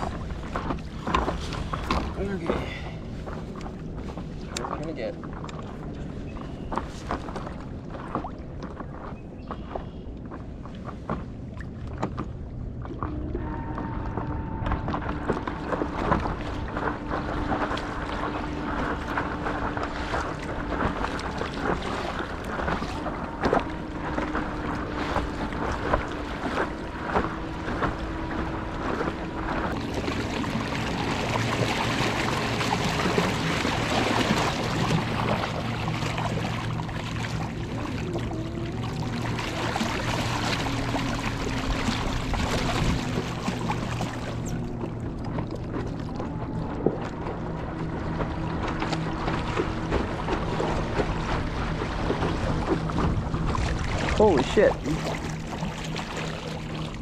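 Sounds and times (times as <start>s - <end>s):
water splashing against a board: 10.4s - 57.0s
electric outboard motor whining: 12.4s - 57.0s.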